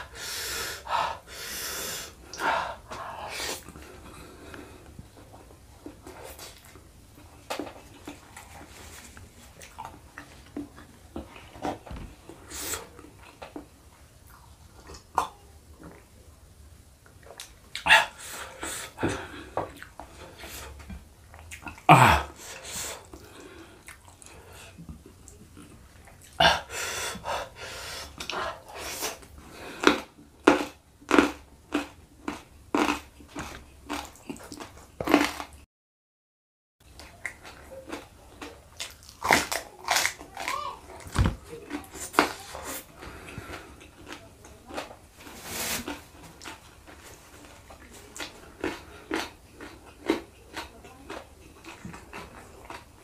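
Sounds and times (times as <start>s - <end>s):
person chewing and smacking: 2.2s - 16.1s, 17.0s - 26.4s, 28.1s - 35.6s, 36.8s - 53.0s.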